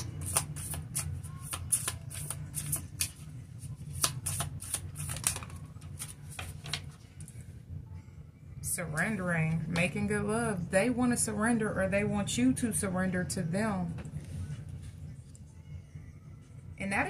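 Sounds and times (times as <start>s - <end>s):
cards being shuffled: 0.0s - 7.3s.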